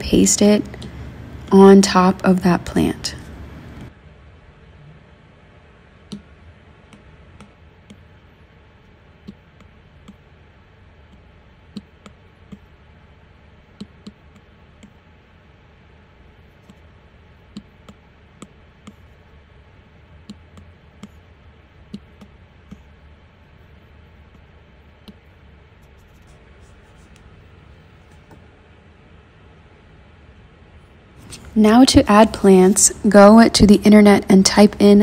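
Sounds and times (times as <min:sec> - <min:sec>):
faint low hum: 0:00.0 - 0:35.0.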